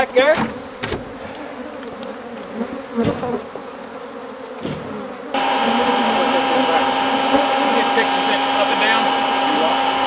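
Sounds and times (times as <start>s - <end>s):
honeybees buzzing: 0.0s - 10.0s.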